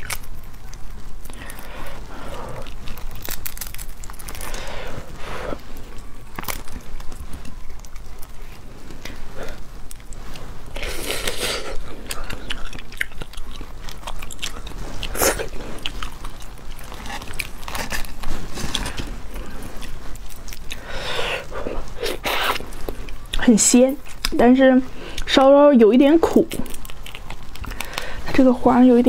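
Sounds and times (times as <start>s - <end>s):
starfish shell cracking and crunching: 0.0s - 21.0s, 26.4s - 28.2s.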